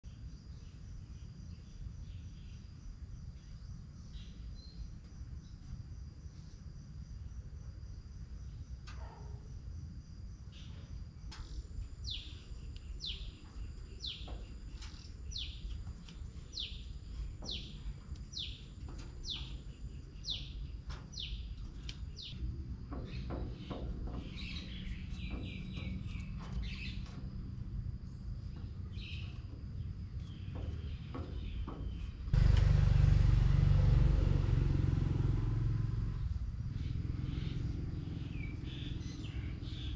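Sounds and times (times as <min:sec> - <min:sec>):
insects droning: 0:00.1 - 0:39.9
low rumble: 0:32.0 - 0:39.9.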